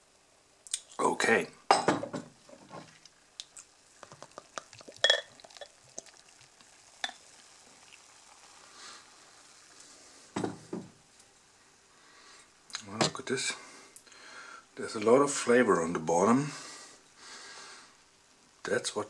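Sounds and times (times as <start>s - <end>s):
beer pour fizzing: 2.4s - 11.0s
glass clinking on glass: 5.0s - 5.7s.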